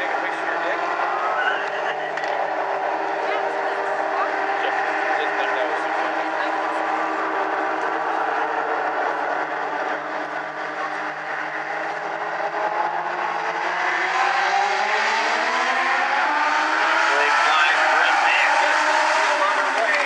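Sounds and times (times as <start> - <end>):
race car engines: 0.0 - 20.0.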